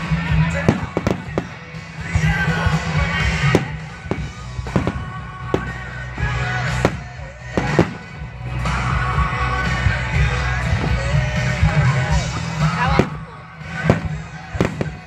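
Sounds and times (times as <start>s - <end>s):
music playing: 0.0s - 15.0s
fireworks bursting: 0.5s - 8.8s, 12.4s - 15.0s.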